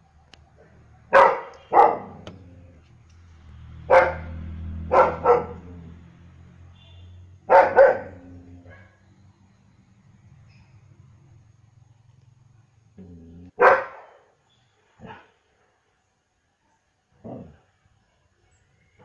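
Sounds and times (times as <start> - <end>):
dog barking: 0.6 - 2.3, 3.8 - 5.7, 7.4 - 9.0, 13.5 - 14.4, 15.0 - 15.3.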